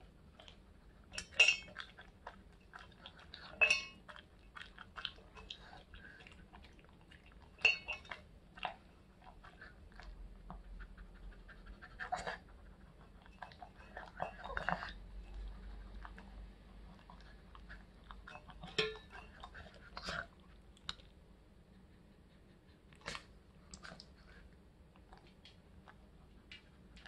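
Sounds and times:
dog licking metal bowl: 0.4 - 15.0, 17.1 - 20.3
kibble clinking against metal bowl: 1.2 - 1.8, 3.5 - 4.0, 7.6 - 8.2, 18.2 - 19.6.

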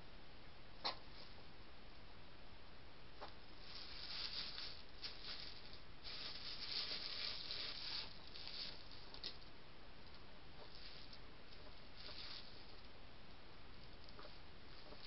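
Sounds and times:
hedgehogs scuffling on concrete: 3.2 - 9.4, 10.6 - 12.9.

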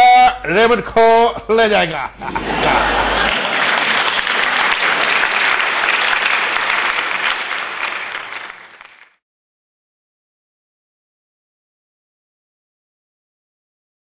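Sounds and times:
crowd applause: 2.3 - 9.2.

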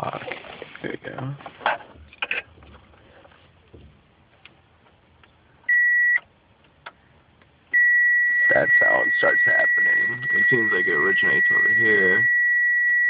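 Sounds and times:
dashboard warning beep: 5.7 - 6.3, 7.7 - 13.0.

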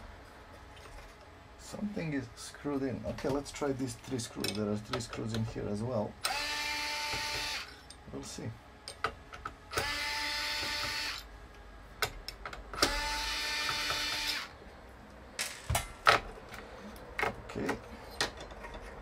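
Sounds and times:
electric screwdriver whirring: 6.2 - 7.7, 9.7 - 11.2, 12.8 - 14.5
sharp clicks and knocks: 12.0 - 13.0.

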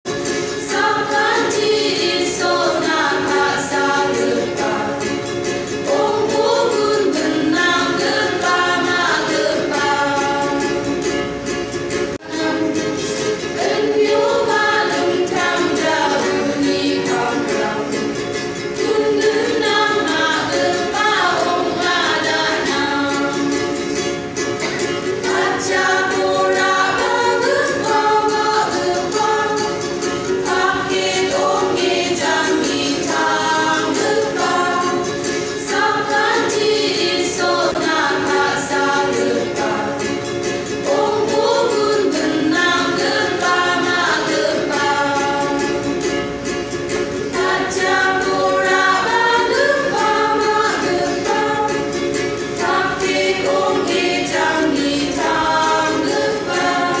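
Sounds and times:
women's choir singing a hymn: 0.1 - 11.4, 12.1 - 57.0.

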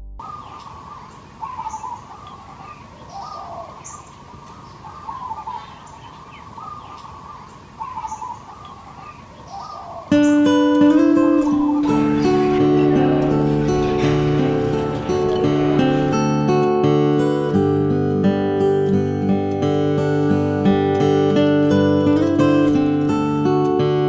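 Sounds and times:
background bird song: 0.2 - 18.7.

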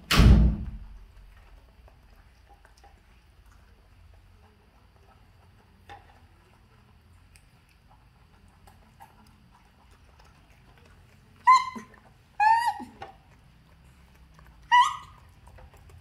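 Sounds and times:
monkey high-pitched calls: 11.4 - 13.0, 14.7 - 15.2.

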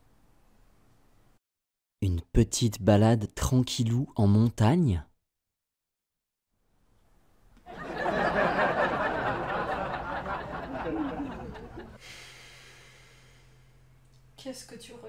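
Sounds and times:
crowd laughter: 7.7 - 12.0.

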